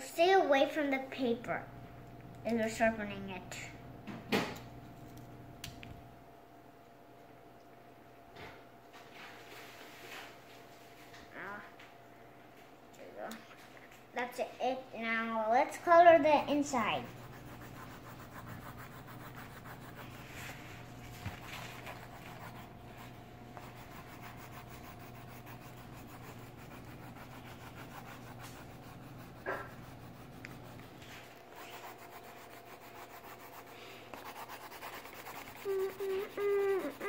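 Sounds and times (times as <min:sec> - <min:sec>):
pencil shading on paper: 0:16.7 - 0:20.6, 0:21.8 - 0:37.0.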